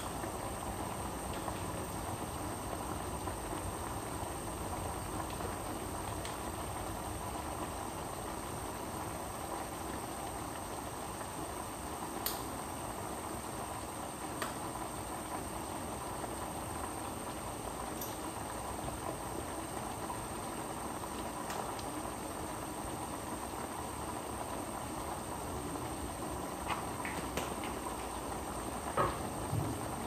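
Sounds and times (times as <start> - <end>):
pot simmering: 0.0 - 30.0.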